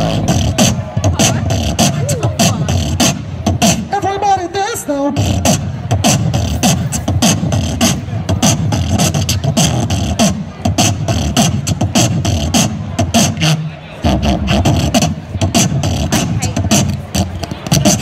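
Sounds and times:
beatboxing through a speaker: 0:00.0 - 0:18.0.

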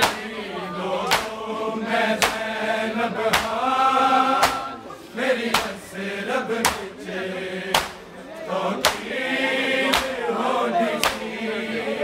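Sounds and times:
chest-beating slaps: 0:00.0 - 0:00.2, 0:01.0 - 0:01.4, 0:02.2 - 0:02.5, 0:03.3 - 0:03.6, 0:04.4 - 0:04.7, 0:05.5 - 0:05.8, 0:06.6 - 0:06.9, 0:07.7 - 0:08.1, 0:08.8 - 0:09.1, 0:09.9 - 0:10.2, 0:11.0 - 0:11.2
men chanting in unison: 0:00.0 - 0:12.0.

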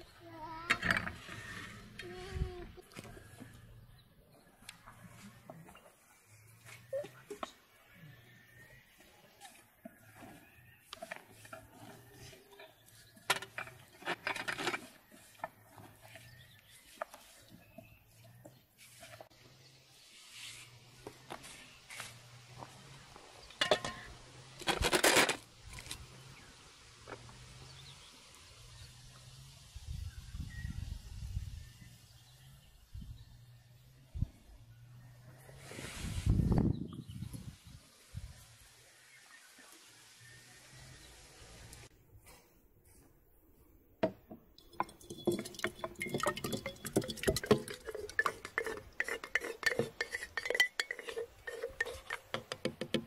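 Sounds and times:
tableware clattering: 0:23.6 - 0:24.1, 0:44.6 - 0:52.8
tableware clinking: 0:44.6 - 0:52.5.

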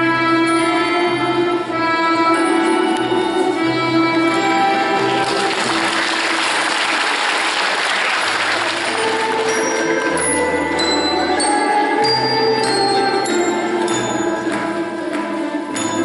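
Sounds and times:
waltz music: 0:00.0 - 0:07.0, 0:08.2 - 0:16.0
audience applauding: 0:04.8 - 0:09.8.

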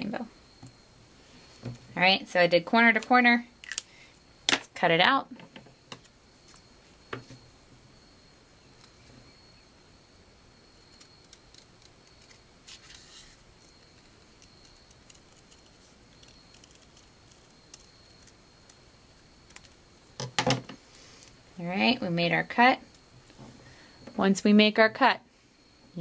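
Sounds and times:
scissors snipping paper: 0:10.9 - 0:18.8.

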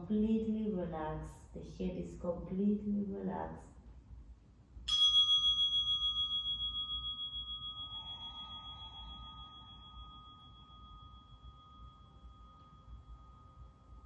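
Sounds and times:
singing bowl ringing: 0:04.9 - 0:14.0.

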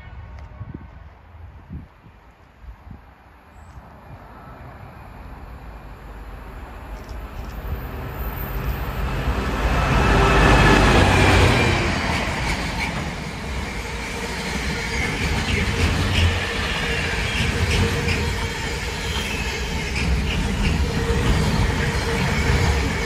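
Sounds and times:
train wheels rumbling on rails: 0:06.0 - 0:23.0
high squeal from wheels: 0:07.0 - 0:23.0.

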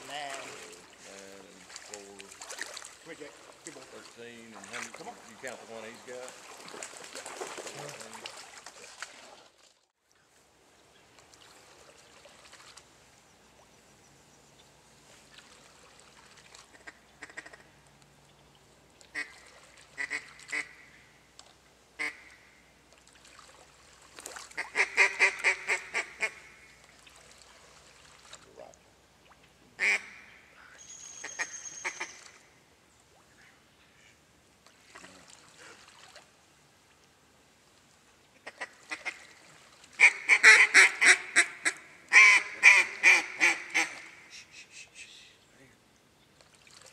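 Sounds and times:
duck quacking: 0:16.7 - 0:17.7, 0:20.0 - 0:20.9, 0:22.0 - 0:22.4, 0:24.6 - 0:26.5, 0:29.8 - 0:30.3, 0:40.0 - 0:45.1.

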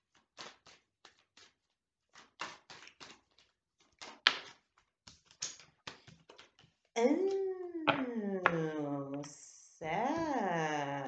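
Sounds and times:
cards being shuffled: 0:00.2 - 0:06.9.

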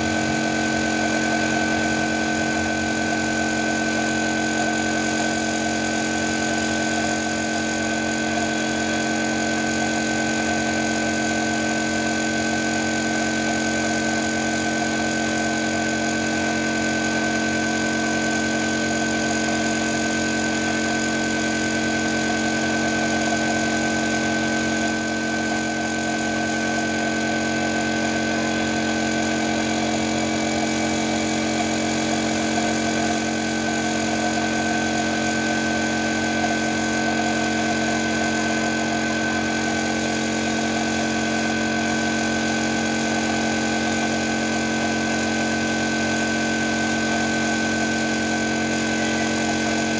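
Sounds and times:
spray gun hissing: 0:00.0 - 0:16.2, 0:19.2 - 0:27.8, 0:29.5 - 0:42.0, 0:47.9 - 0:49.8
air compressor running: 0:00.0 - 0:49.9.

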